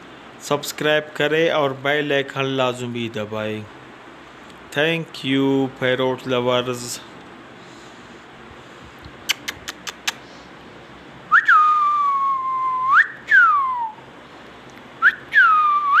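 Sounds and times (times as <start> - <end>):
parrot clicks: 9.0 - 10.2
parrot whistling: 11.3 - 14.0, 15.0 - 16.0.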